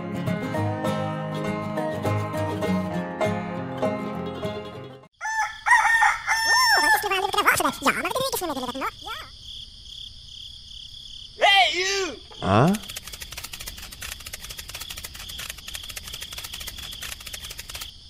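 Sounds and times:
crickets chirping: 5.2 - 18.0
insects ticking: 5.2 - 18.0.

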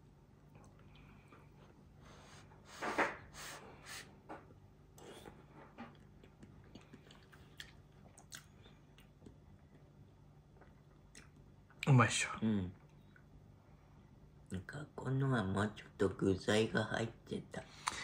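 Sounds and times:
quiet chewing: 0.4 - 1.9, 5.0 - 11.9.

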